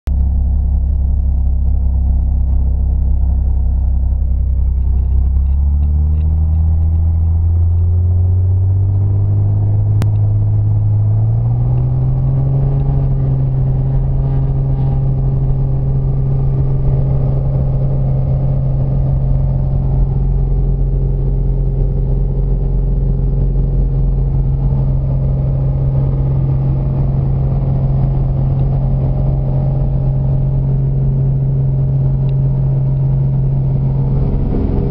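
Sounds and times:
aircraft engine and propeller drone: 0:08.9 - 0:34.9.

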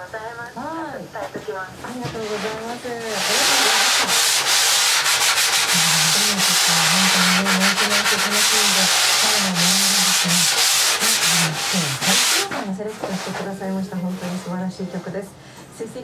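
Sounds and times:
sanding block rubbing foam: 0:02.1 - 0:14.6.

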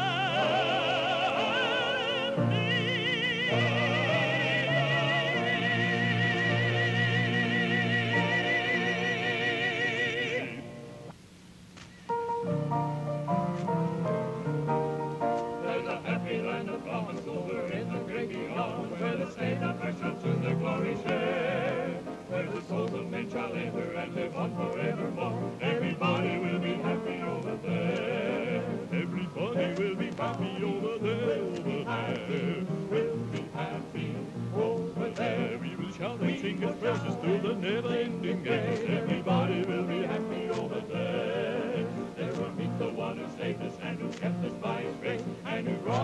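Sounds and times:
voices singing with vibrato: 0:00.0 - 0:11.1, 0:15.3 - 0:46.0
bass accompaniment: 0:12.1 - 0:46.0.

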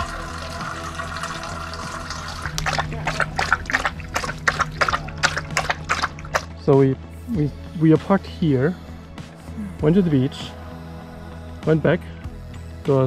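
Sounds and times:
dog lapping water: 0:00.0 - 0:06.6
water running into metal bowl: 0:00.0 - 0:06.6.

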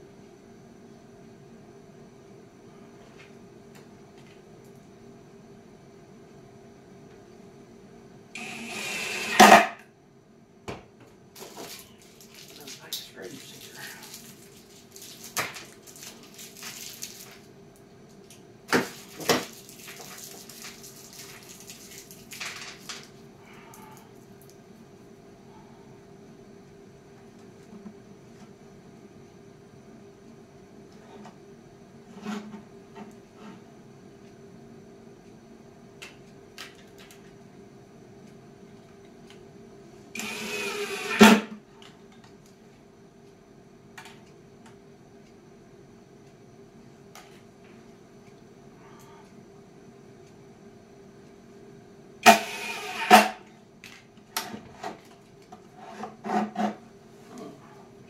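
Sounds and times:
faint steady hum: 0:00.0 - 0:58.0
drill driving a screw: 0:08.4 - 0:09.8, 0:40.2 - 0:41.5, 0:52.2 - 0:53.4.

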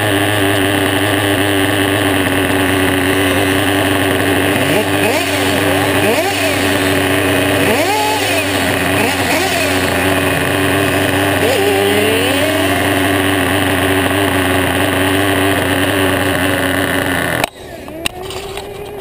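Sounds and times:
model car engine idling and revving: 0:00.0 - 0:19.0.

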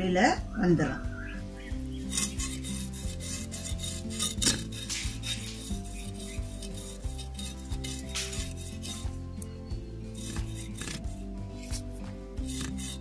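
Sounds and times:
soft background music: 0:00.0 - 0:13.0
knife scraping fish scales: 0:01.9 - 0:13.0.

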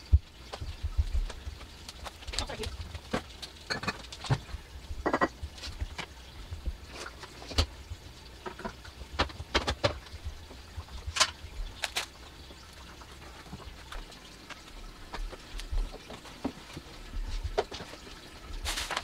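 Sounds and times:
containers clinking on countertop: 0:03.7 - 0:04.2.

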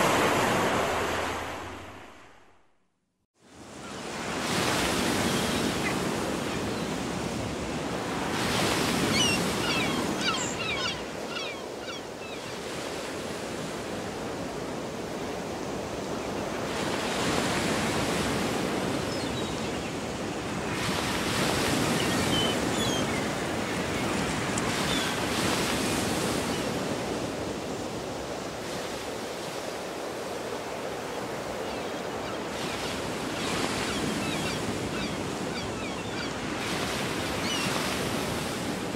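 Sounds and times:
sea surf rushing: 0:00.0 - 0:02.6.

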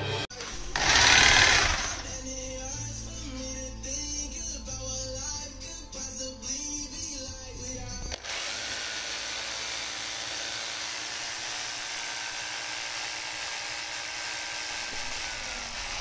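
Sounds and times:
power tool motor whining: 0:00.4 - 0:02.2, 0:08.1 - 0:16.0.

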